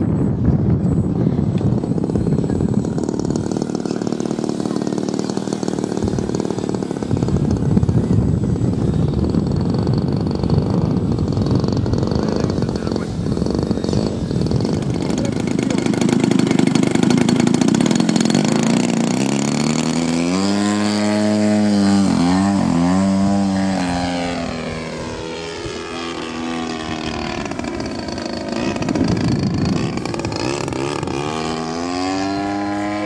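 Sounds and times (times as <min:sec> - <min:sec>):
model airplane engine and propeller: 0:00.0 - 0:33.0.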